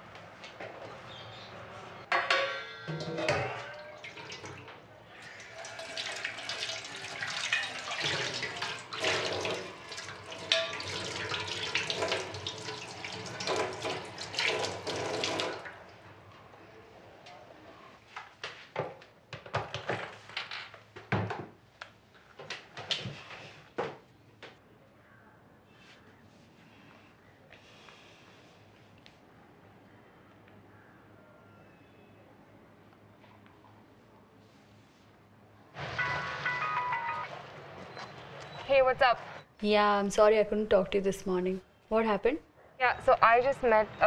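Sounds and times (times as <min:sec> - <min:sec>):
dishes clinking: 0:02.1 - 0:04.0, 0:10.4 - 0:11.0.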